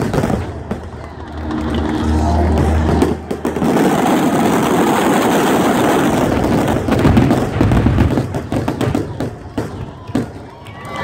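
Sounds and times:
deep fireworks booms: 0.0s - 10.5s
fireworks crackling and popping: 0.0s - 11.0s.

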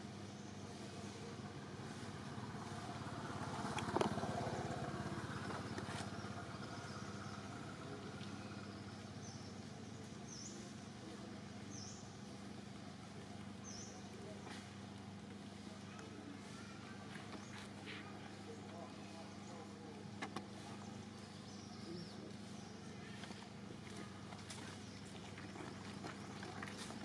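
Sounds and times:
outdoor background hum: 0.0s - 27.0s
motorbike passing: 1.5s - 9.3s.

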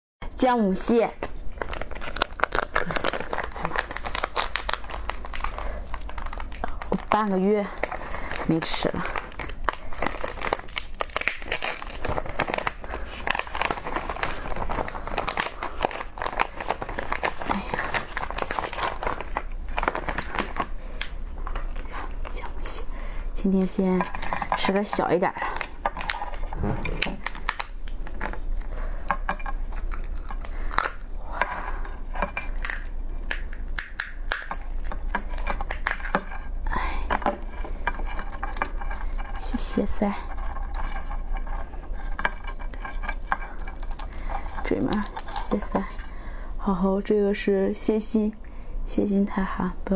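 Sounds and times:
crab shell cracking: 1.2s - 7.2s, 7.8s - 21.8s, 27.2s - 36.6s, 40.4s - 45.7s
plastic bag crinkling and rustling: 1.5s - 22.4s.

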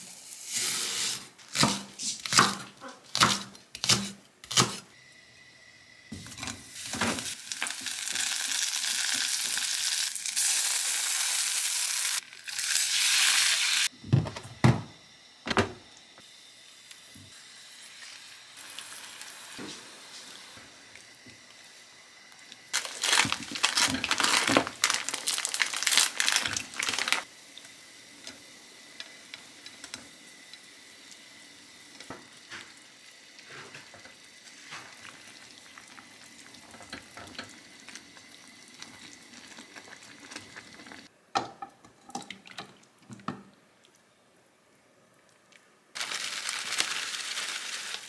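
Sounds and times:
broth sizzling and bubbling: 16.2s - 41.1s.

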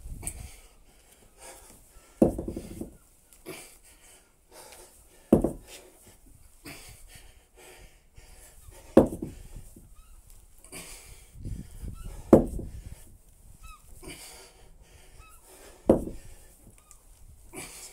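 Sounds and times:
heavy panting breaths: 0.2s - 9.9s, 10.6s - 13.1s, 13.9s - 16.8s, 17.4s - 17.9s
kettlebell set down on concrete: 5.3s - 5.6s, 9.0s - 9.4s, 12.3s - 12.6s, 15.9s - 16.2s.

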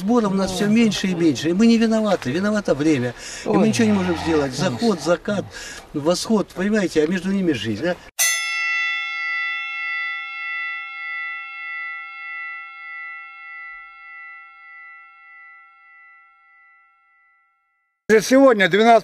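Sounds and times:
ship's bell ringing: 8.2s - 18.0s.

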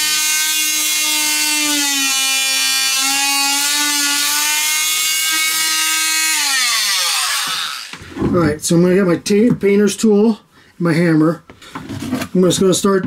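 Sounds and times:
oscillating multi-tool buzzing: 0.0s - 8.0s.

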